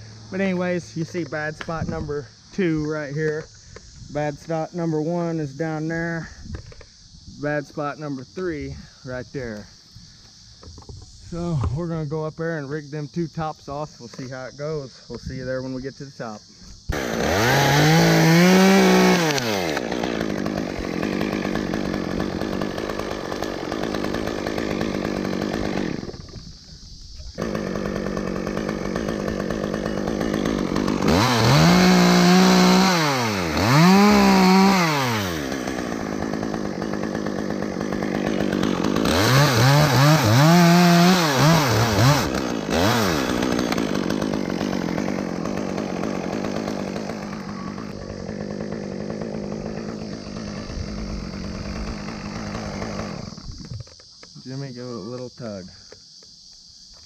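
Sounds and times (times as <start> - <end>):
chainsaw revving: 16.9 - 26.4, 27.4 - 53.7.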